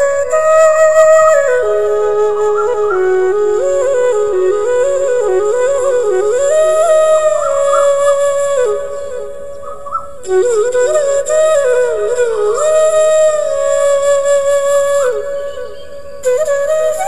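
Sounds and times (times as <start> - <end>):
flute playing slow melody: 0.0 - 17.0.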